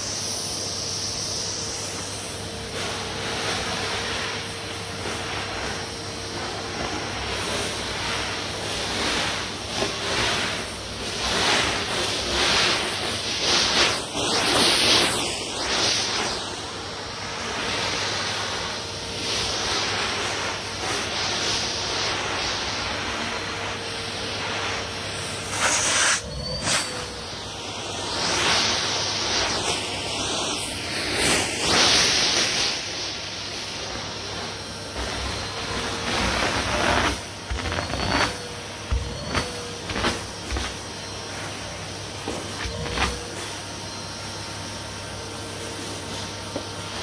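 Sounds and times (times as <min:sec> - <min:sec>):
vacuum cleaner sucking beads: 0:00.0 - 0:47.0.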